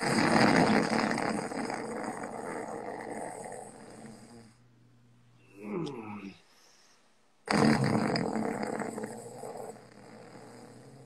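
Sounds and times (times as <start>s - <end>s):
man snoring: 0.0s - 4.6s, 7.5s - 11.0s.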